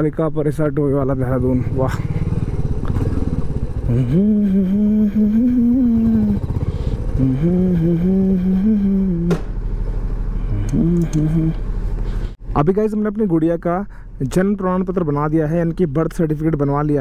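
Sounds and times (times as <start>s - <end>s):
motorcycle engine running: 1.0s - 12.4s
man humming: 3.8s - 9.4s, 10.4s - 11.7s.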